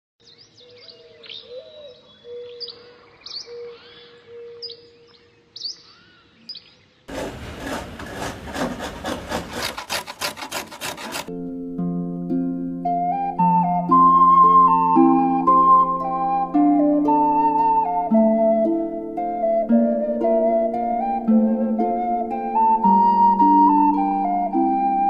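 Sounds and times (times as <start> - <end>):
birds chirping: 0.2 - 7.1
saw cutting wood: 7.1 - 11.4
flute-like music: 11.1 - 25.0.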